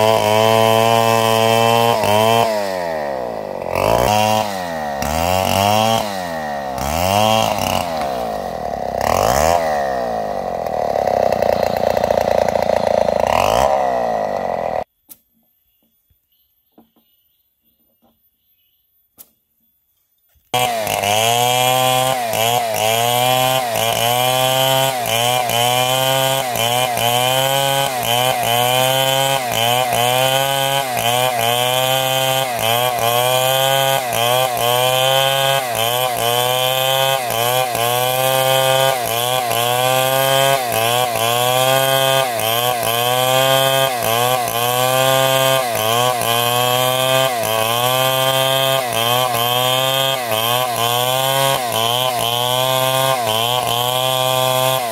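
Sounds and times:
power saw cutting wood: 0.0s - 14.9s, 20.6s - 54.9s.

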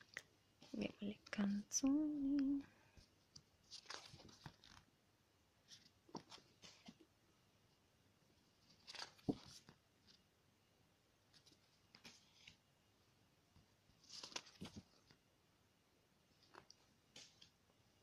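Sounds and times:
postcards rustling: 2.3s - 4.9s, 5.6s - 7.1s, 8.6s - 10.3s, 11.3s - 12.7s, 13.9s - 15.2s.

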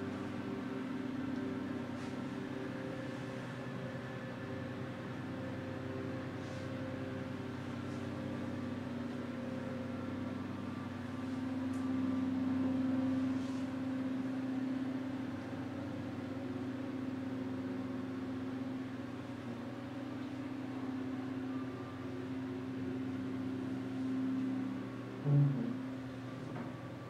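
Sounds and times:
steady mechanical hum: 0.0s - 27.0s.

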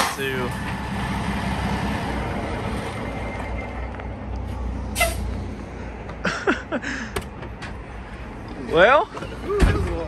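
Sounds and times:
diesel truck engine idling: 0.1s - 10.0s
air brake hiss: 4.9s - 5.3s.

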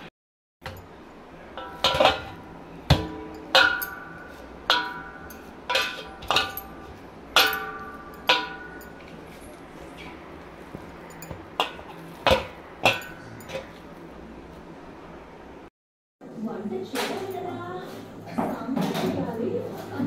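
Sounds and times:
knocks on ringing metal plate: 1.6s - 9.0s.

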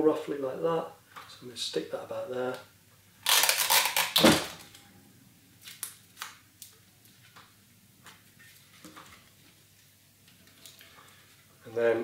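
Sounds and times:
cardboard and tape crackling: 3.2s - 4.8s, 5.6s - 7.4s.

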